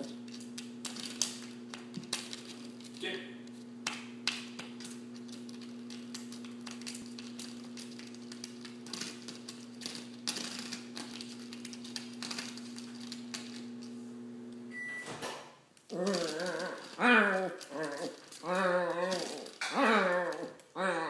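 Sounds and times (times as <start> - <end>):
dog claws clicking on hardwood: 3.8 - 13.7
short high beep: 14.7 - 15.2.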